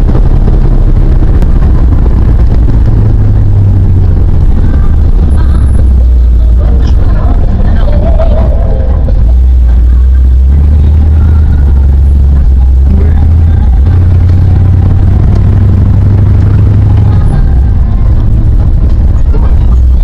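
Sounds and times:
car engine droning: 0:00.0 - 0:20.0.

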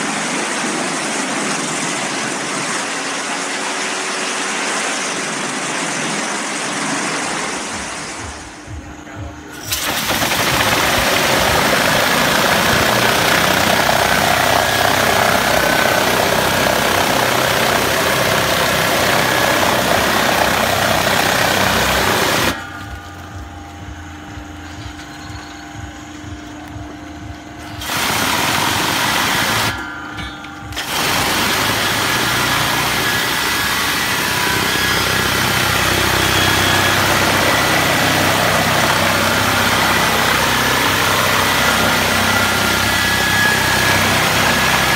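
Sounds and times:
machine hum: 0:00.0 - 0:44.9
high-pressure water spray hissing: 0:09.6 - 0:14.0, 0:27.8 - 0:29.7.

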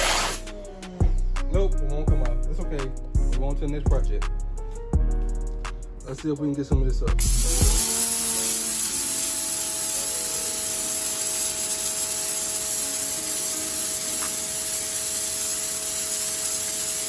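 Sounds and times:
pressure washer spraying concrete: 0:00.0 - 0:00.5, 0:07.2 - 0:17.0.

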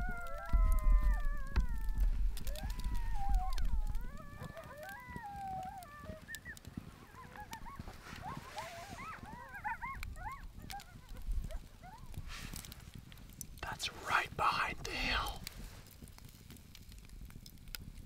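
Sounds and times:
coyotes howling: 0:00.0 - 0:12.2
coyotes yipping and yelping: 0:00.0 - 0:12.9.

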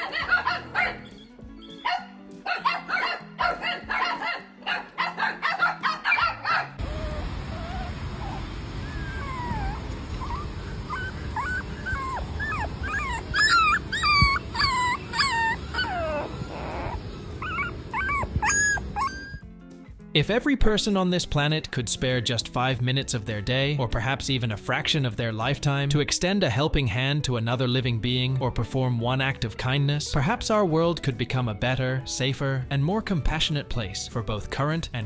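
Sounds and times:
puppy whimpering and yipping: 0:00.0 - 0:19.4.

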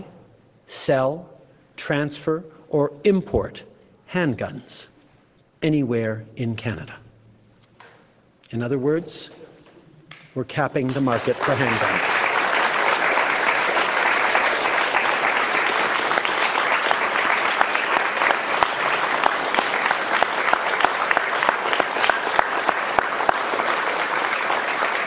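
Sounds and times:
audience applauding: 0:10.8 - 0:25.0.

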